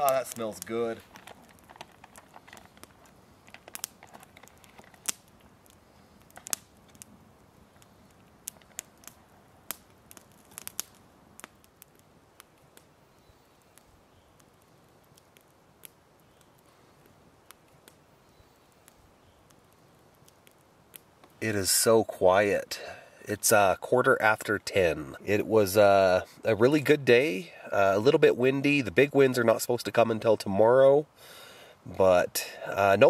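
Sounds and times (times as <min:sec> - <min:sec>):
campfire crackling and popping: 0:00.0 - 0:33.0.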